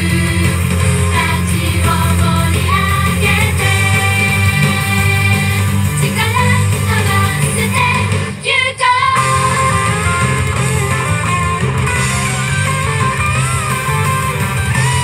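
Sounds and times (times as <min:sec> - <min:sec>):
electric guitar: 0:00.0 - 0:08.4, 0:09.2 - 0:15.0
pop song with female group vocals: 0:00.0 - 0:10.1.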